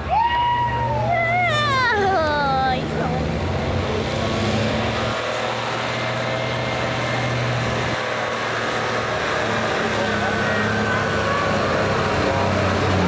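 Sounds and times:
diesel engine running under load: 0:01.3 - 0:13.0.

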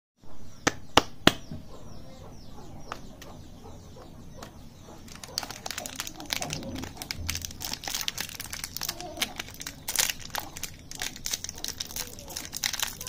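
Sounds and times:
faint birds chirping: 0:00.2 - 0:13.0
plastic wrapper crinkling: 0:05.0 - 0:13.0.

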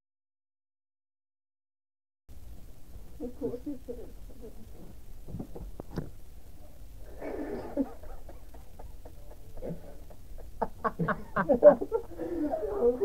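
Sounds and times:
low voices: 0:06.5 - 0:13.0
muffled stifled laughter: 0:07.1 - 0:13.0.

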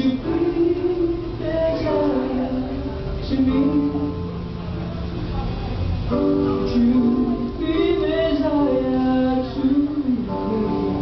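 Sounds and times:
vocal quartet singing in harmony: 0:00.0 - 0:04.2, 0:06.7 - 0:11.0.

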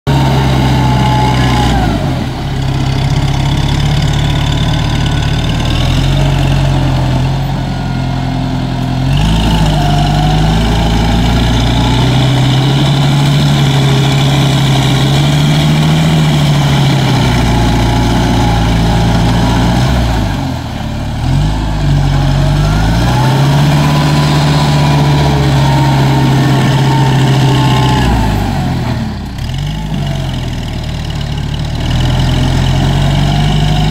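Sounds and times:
tractor diesel engine under load: 0:00.0 - 0:33.9.

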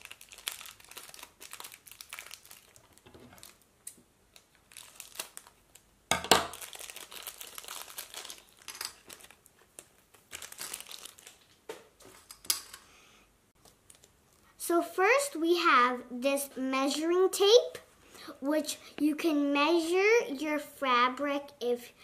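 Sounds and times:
plastic packet crinkling: 0:00.0 - 0:12.7, 0:13.6 - 0:14.2.

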